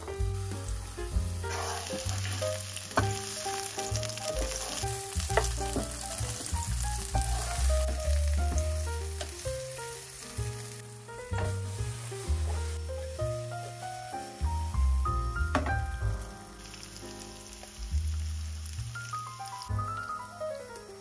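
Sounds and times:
background music: 0.0 - 21.0
pepper sizzling in oil: 0.2 - 21.0
wooden spoon clicking on pan: 3.0 - 3.2, 9.2 - 9.4.

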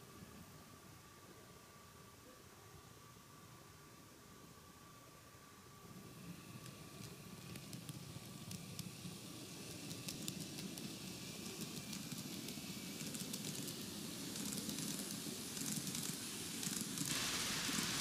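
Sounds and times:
faint motor whine: 0.0 - 18.0
model train rolling rumble: 5.8 - 18.0.

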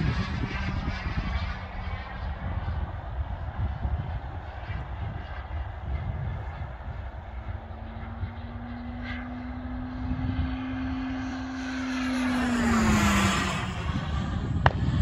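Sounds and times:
model jet turbine whining: 11.2 - 15.0.

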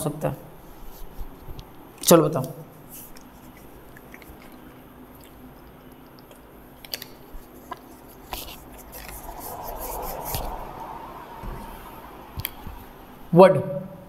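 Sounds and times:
person drinking: 2.9 - 10.7.

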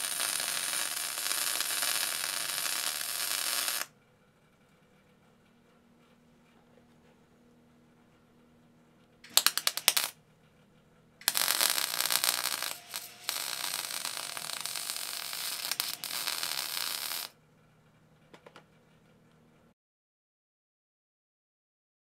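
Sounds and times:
arc welder crackling: 0.0 - 3.9, 9.3 - 10.2, 11.2 - 17.4.

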